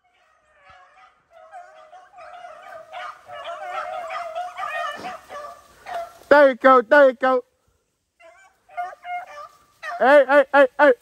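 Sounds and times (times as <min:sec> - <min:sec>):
dogs baying: 0:00.0 - 0:06.3, 0:08.2 - 0:10.2.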